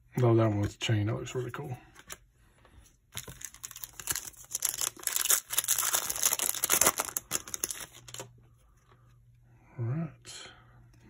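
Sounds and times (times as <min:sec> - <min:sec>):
foil wrapper crinkling: 0:03.2 - 0:08.3.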